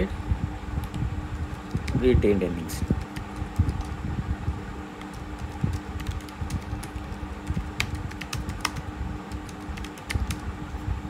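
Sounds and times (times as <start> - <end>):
computer keyboard typing: 0.8 - 2.1, 2.8 - 3.9, 5.0 - 10.5.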